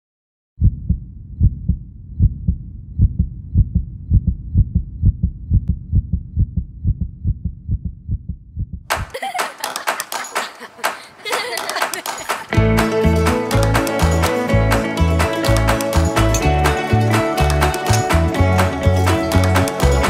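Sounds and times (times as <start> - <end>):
heartbeat thumps: 0.6 - 9.2.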